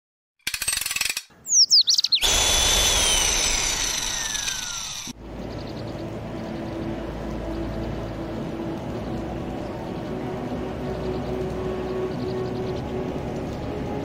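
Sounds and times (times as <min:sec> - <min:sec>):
falling chirpy whistles: 0:01.5 - 0:05.1
rapid buzzing rattle: 0:02.2 - 0:05.2
low outdoor rumble: 0:02.9 - 0:14.0.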